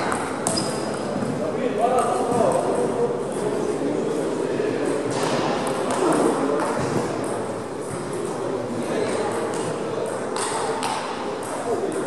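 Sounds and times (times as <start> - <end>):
ping pong balls clicking: 0.0 - 1.0, 9.1 - 12.0
murmur of voices: 0.0 - 12.0.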